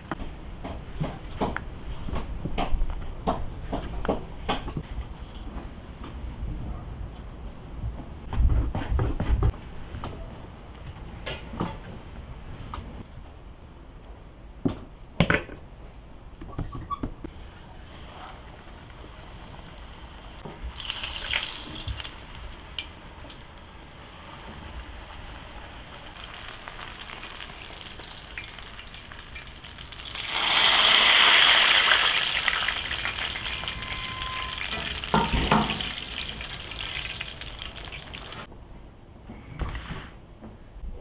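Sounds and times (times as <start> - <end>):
flatbreads frying in oil: 17.3 - 38.5.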